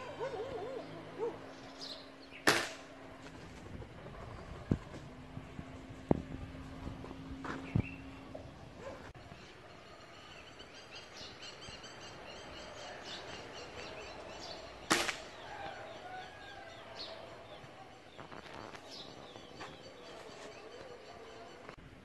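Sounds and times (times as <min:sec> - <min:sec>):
small birds chirping: 0:00.0 - 0:21.8
air rifle shot: 0:02.4 - 0:02.9, 0:14.9 - 0:15.4.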